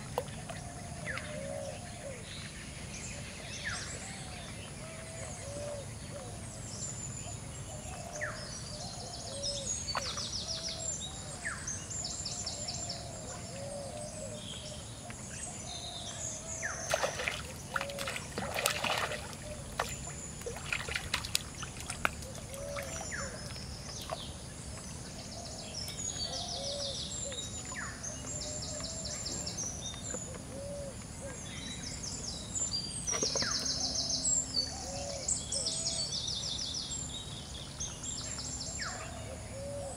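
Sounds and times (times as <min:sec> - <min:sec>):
birds calling and trilling: 0:00.0 - 0:39.9
water splashing and sloshing: 0:16.6 - 0:26.0.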